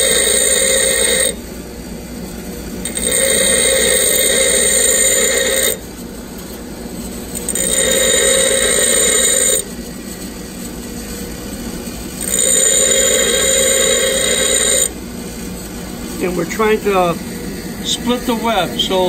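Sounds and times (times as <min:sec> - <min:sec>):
bench grinder running: 0:00.0 - 0:01.4, 0:02.8 - 0:19.0
drill bit grinding on wheel: 0:00.0 - 0:01.4, 0:02.8 - 0:05.8, 0:07.3 - 0:09.7, 0:12.2 - 0:15.0.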